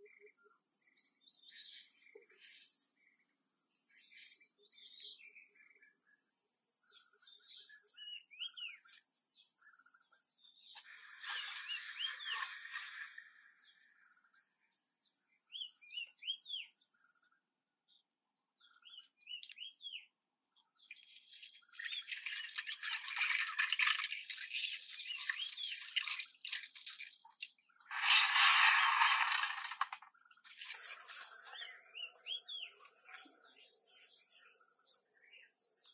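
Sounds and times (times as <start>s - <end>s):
birds chirping: 0.0s - 17.2s, 18.6s - 26.6s, 27.7s - 35.9s
fountain water splashing on pebbles: 21.1s - 31.4s.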